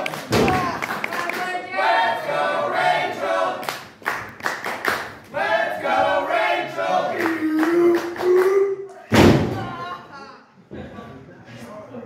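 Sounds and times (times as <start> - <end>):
crowd chanting in unison: 0.0 - 4.0, 5.3 - 7.7
sharp claps: 3.6 - 5.3.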